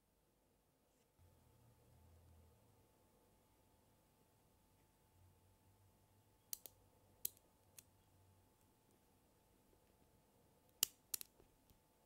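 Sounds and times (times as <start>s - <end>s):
magnet balls clicking together: 6.5s - 7.9s, 10.7s - 11.4s.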